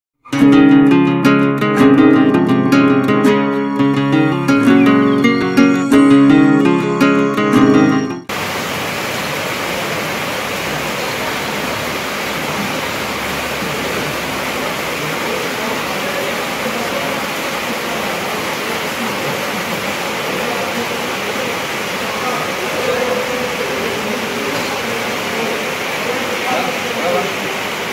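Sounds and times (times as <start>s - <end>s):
guitar jingle: 0.2s - 8.3s
light rain falling: 8.3s - 27.9s.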